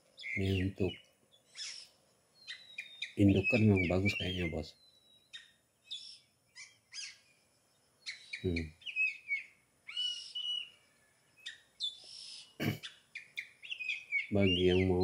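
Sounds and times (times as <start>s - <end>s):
bird chirping and whistling: 1.5s - 7.2s, 8.0s - 10.7s, 11.4s - 15.0s.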